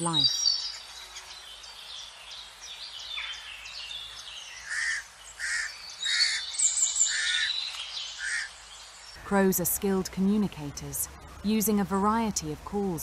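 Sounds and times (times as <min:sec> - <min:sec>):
songbirds twittering: 0:00.0 - 0:13.0
crows raspy calls: 0:04.6 - 0:08.6.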